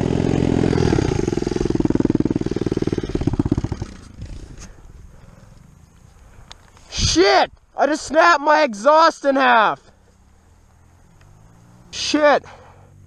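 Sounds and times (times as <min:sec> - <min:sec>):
motorbike engine running: 0:00.0 - 0:06.0
faint ticks: 0:03.7 - 0:06.9, 0:09.9 - 0:11.8.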